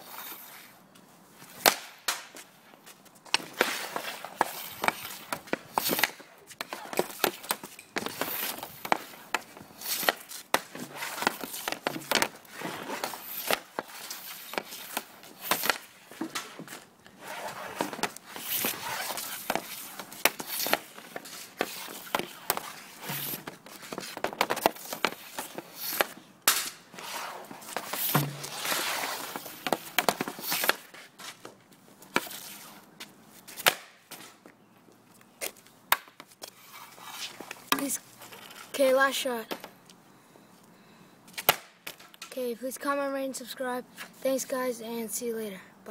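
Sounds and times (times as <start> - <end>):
pucks clattering and scraping: 1.4 - 32.8, 35.4 - 39.8, 41.3 - 42.4
hockey stick shots cracking: 1.5 - 2.5, 3.2 - 32.8, 33.5 - 34.4, 35.4 - 39.8, 41.3 - 42.4.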